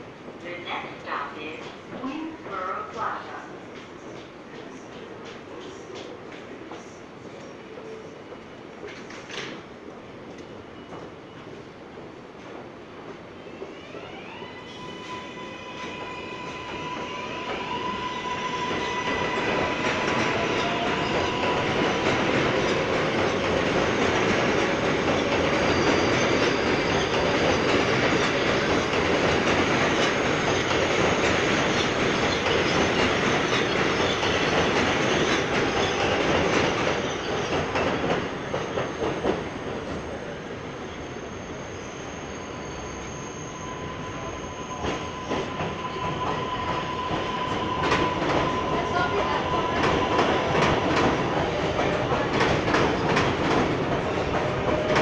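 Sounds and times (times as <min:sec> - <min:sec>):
train wheels rumbling on track: 0:08.2 - 0:55.0
high wheel squeal: 0:40.7 - 0:51.6.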